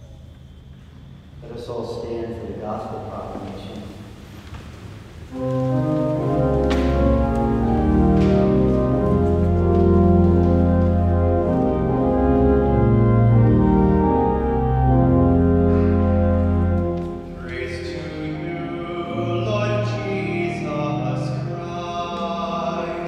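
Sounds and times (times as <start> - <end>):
church organ chords: 5.3 - 23.0.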